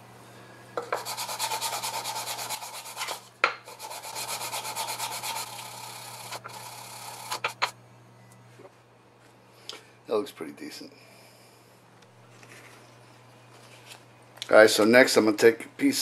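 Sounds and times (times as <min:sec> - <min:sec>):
metal rubbed on wet sandpaper: 0:01.0 - 0:07.7.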